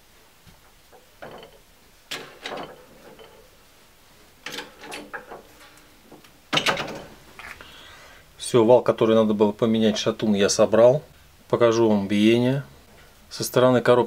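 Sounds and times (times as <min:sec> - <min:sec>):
metal parts clanking and scraping: 0:00.9 - 0:03.6, 0:04.4 - 0:07.6.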